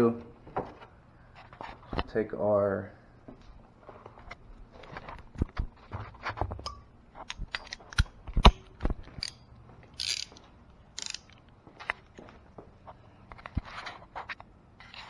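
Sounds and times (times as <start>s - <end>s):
hand tools clicking and knocking: 6.6s - 10.4s.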